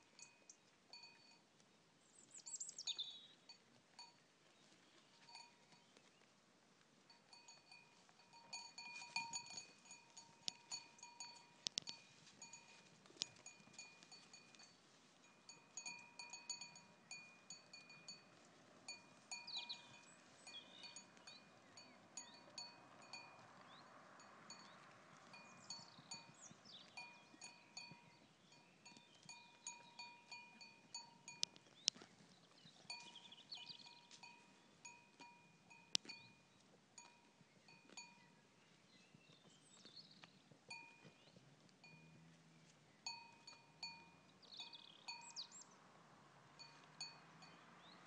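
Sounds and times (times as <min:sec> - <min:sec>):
goat bell clinking: 0:00.0 - 0:01.6, 0:02.2 - 0:06.1, 0:07.1 - 0:38.4, 0:39.7 - 0:42.4, 0:43.0 - 0:48.0
faint bird chirps: 0:02.0 - 0:06.3, 0:18.9 - 0:23.9, 0:25.4 - 0:35.0, 0:43.0 - 0:45.8.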